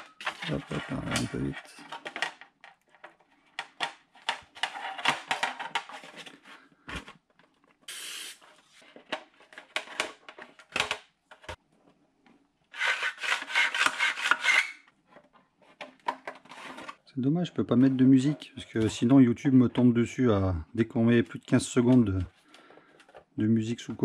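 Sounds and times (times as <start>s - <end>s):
plastic rubbing and scraping: 0.0s - 7.9s, 12.7s - 17.1s
short hiss: 7.9s - 8.4s.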